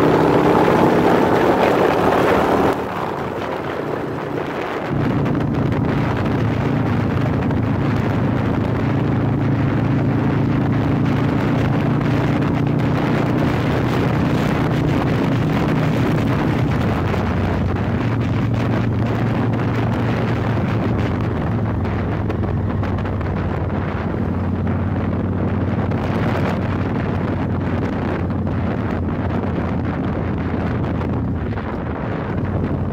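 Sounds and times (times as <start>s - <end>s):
motorcycle engine running: 0.0s - 32.9s
wind buffeting microphone: 0.0s - 32.9s.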